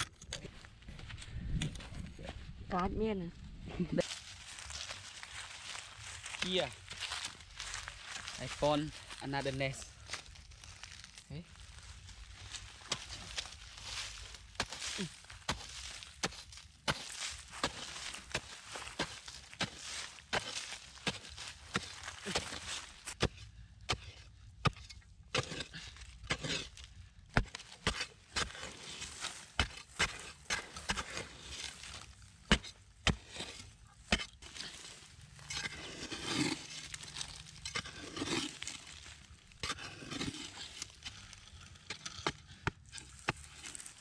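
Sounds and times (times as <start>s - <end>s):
digging blade striking hard earth: 12.8s - 44.0s.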